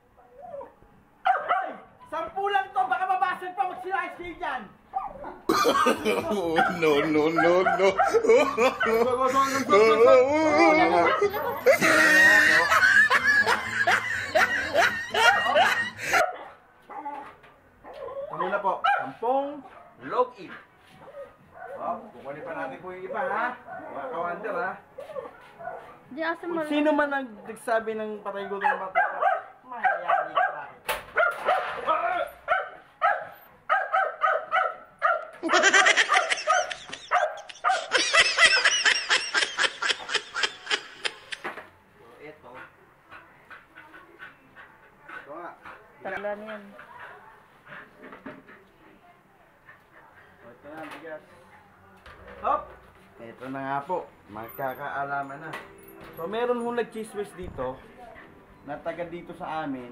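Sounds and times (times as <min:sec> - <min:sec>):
dog yipping: 0:00.2 - 0:01.8, 0:04.9 - 0:05.4, 0:06.6 - 0:08.2, 0:15.2 - 0:19.9, 0:28.5 - 0:35.4, 0:36.1 - 0:38.0
person laughing: 0:05.5 - 0:06.9, 0:07.7 - 0:16.2, 0:35.4 - 0:41.5.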